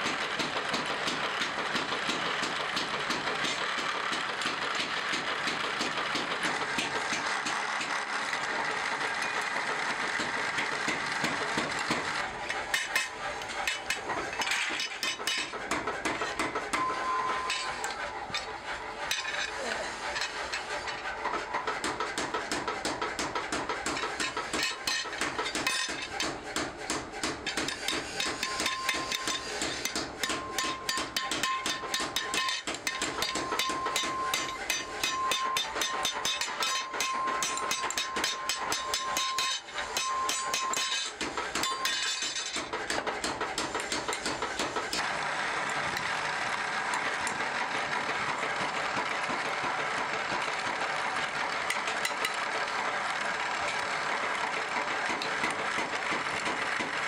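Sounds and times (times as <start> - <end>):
drill press boring into wood: 3.5 - 57.0
hammer tapping on steel: 21.6 - 45.0.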